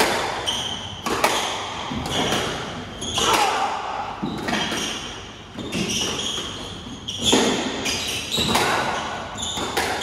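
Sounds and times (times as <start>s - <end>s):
squash ball hitting rackets and walls: 0.0s - 10.0s
shoes squeaking on wooden floor: 4.2s - 10.0s.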